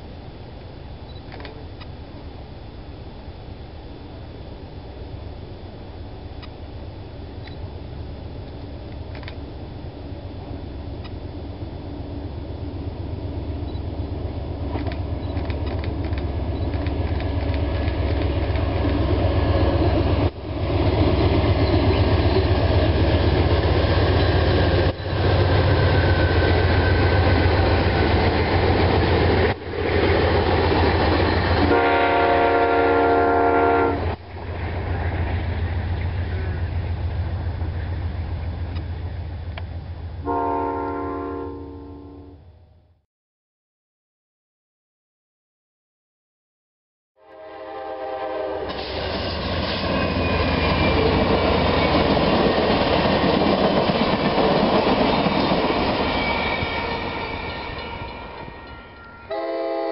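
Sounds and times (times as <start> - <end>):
diesel train engine rumble: 0.0 - 43.0, 47.2 - 59.9
rail noise: 0.0 - 43.0, 47.2 - 59.9
train horn chord: 31.6 - 34.2, 40.2 - 42.6, 47.2 - 48.8, 56.8 - 59.9.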